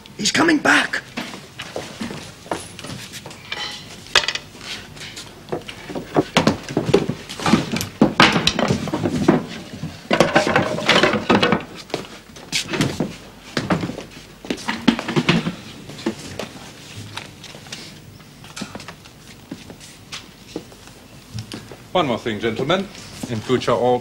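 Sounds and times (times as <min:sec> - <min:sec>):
floorboards knocking and scraping: 0:04.2 - 0:17.1.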